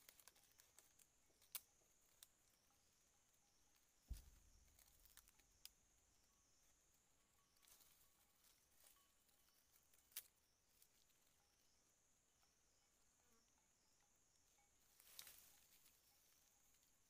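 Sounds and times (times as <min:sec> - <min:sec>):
dry bamboo leaves rustling: 0:00.0 - 0:02.3, 0:04.1 - 0:05.7, 0:07.6 - 0:11.2, 0:14.9 - 0:16.9
faint high wavering whine: 0:01.8 - 0:17.0.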